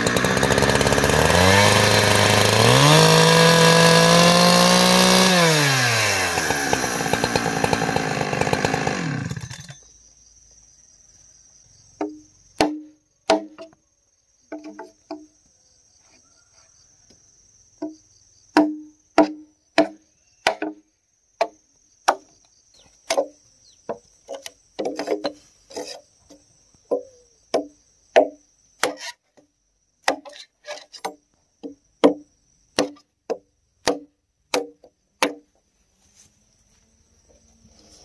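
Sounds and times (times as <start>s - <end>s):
tool striking wood: 12.0s - 13.8s, 18.6s - 20.8s, 21.4s - 22.3s, 26.9s - 30.4s, 31.0s - 32.2s, 32.8s - 35.5s.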